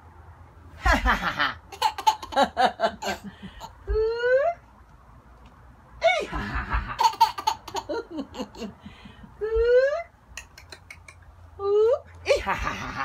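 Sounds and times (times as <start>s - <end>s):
baby laughing: 0.9s - 4.0s, 6.2s - 8.9s.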